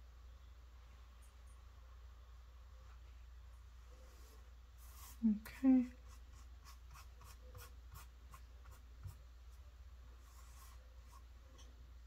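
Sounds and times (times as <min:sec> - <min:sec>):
paintbrush scratching on canvas: 0:04.1 - 0:09.6, 0:10.2 - 0:11.3.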